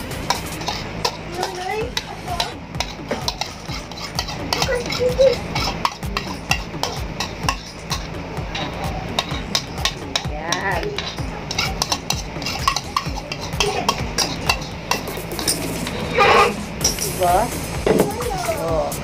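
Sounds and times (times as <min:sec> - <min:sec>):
metal spoon scraping plastic bowl: 0:00.3 - 0:10.2, 0:11.0 - 0:17.0.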